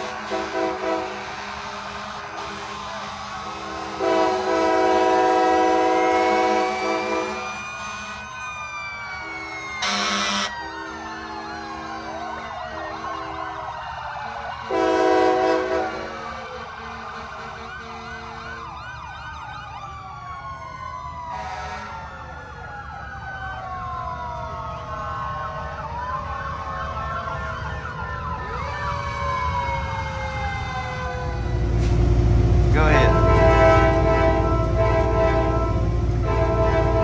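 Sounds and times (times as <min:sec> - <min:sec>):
emergency sirens wailing: 0:00.0 - 0:37.0
loud short horn blast: 0:03.9 - 0:07.3, 0:32.8 - 0:37.0
steady horn chord: 0:32.8 - 0:37.0.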